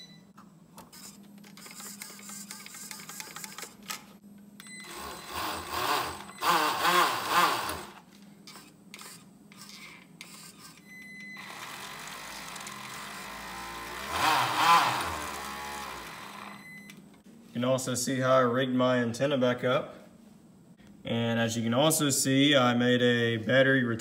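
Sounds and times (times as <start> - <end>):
small electric motor whining: 4.9 - 9.8, 11.4 - 16.6.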